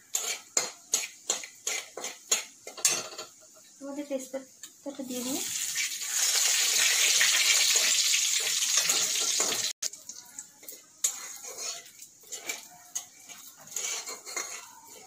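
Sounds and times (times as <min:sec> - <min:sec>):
metal spatula scraping a pan: 0:00.0 - 0:03.4, 0:06.1 - 0:09.8, 0:10.6 - 0:15.0
seeds sizzling in hot oil: 0:00.0 - 0:15.0.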